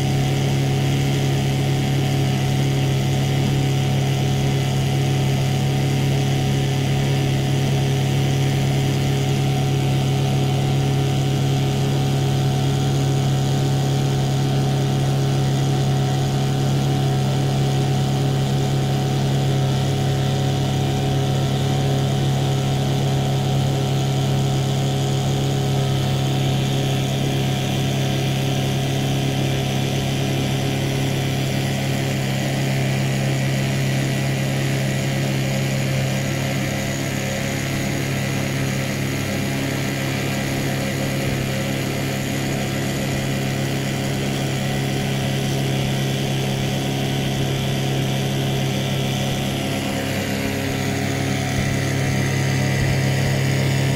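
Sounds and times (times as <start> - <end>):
boat motor humming: 0.0 - 53.9.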